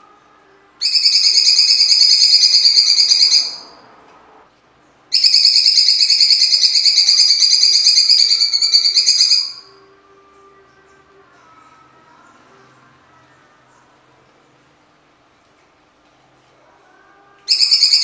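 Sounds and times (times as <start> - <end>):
bird singing harsh high notes: 0.8 - 3.6, 5.1 - 9.7, 17.5 - 18.0.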